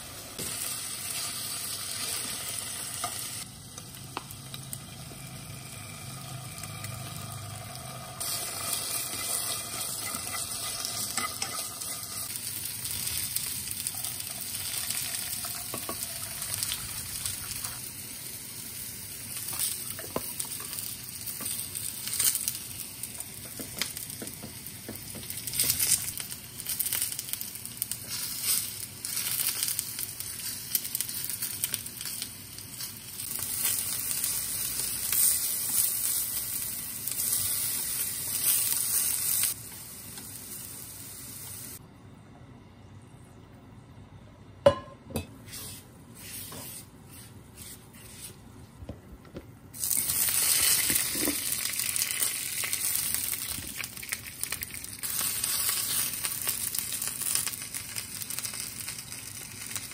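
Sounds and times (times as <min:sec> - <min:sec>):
food sizzling in frying pan: 0:00.0 - 0:41.8, 0:49.8 - 0:59.9
cooking utensils clicking and scraping: 0:08.2 - 0:12.3.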